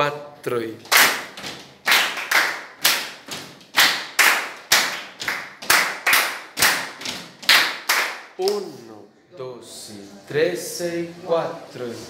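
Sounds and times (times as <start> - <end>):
group clapping in rhythm: 0.8 - 8.7.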